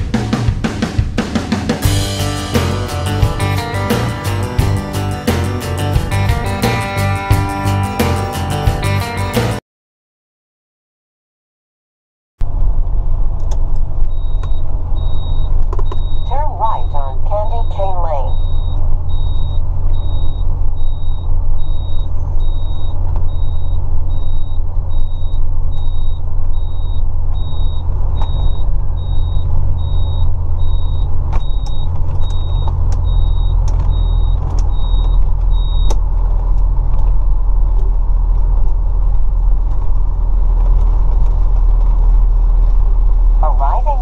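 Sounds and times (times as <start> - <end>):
engine and road drone: 0.0 - 9.6, 12.4 - 44.0
high electronic beeps: 14.1 - 35.9.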